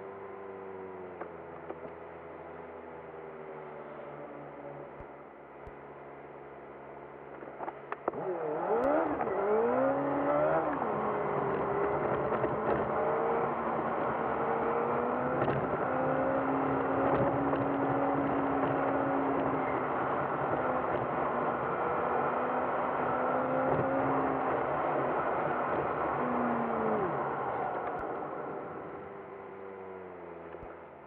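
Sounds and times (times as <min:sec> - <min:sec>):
road noise: 0:00.0 - 0:31.0
car engine revving: 0:08.1 - 0:30.8.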